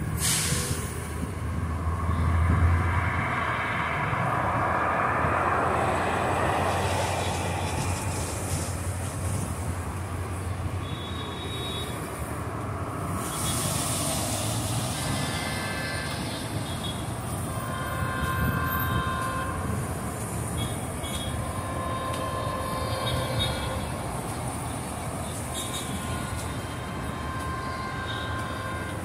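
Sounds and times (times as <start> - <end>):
low rumble of train engine: 0.0 - 29.0
locomotive air horn blasts: 10.2 - 29.0.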